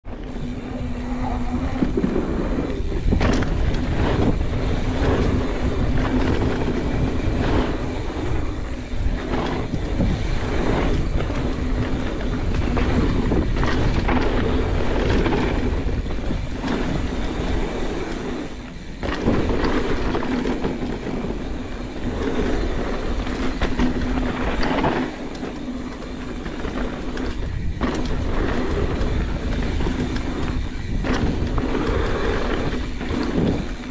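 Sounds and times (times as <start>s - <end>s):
steady low hum: 0.0s - 24.9s
bike rattling over bumps: 0.0s - 33.9s
bike tyres rumbling on dirt: 0.0s - 33.9s.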